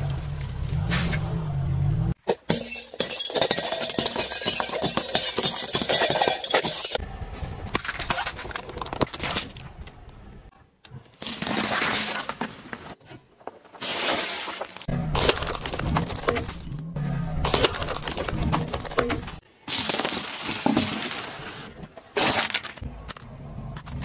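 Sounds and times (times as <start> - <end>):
objects crushed under tyre: 2.2 - 7.0, 11.2 - 16.8, 17.4 - 22.9.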